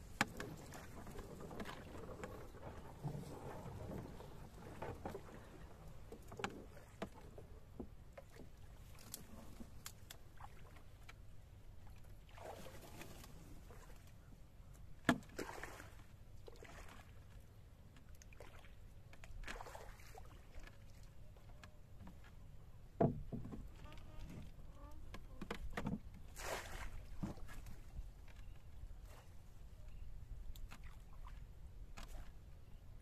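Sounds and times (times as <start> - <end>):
water swishing along hull: 0.0 - 33.0
pole knocking against wood: 23.0 - 23.7.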